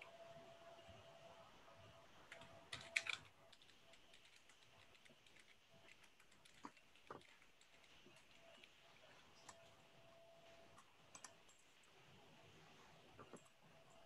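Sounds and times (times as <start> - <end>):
faint steady hum: 0.0 - 14.0
keyboard typing: 2.3 - 8.8, 10.7 - 11.8.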